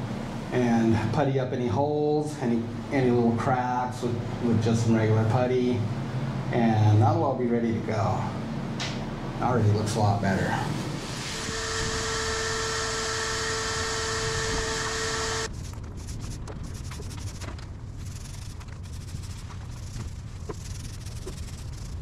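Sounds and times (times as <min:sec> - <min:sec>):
machine hum with high whine: 0:00.0 - 0:22.0
roller rubbing on foam: 0:14.6 - 0:22.0.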